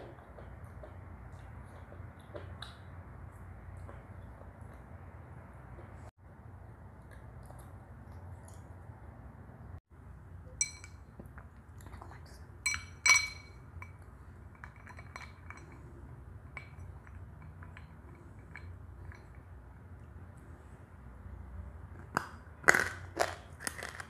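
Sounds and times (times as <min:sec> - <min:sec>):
glass bowl clinking: 0:10.5 - 0:11.2, 0:12.6 - 0:19.6.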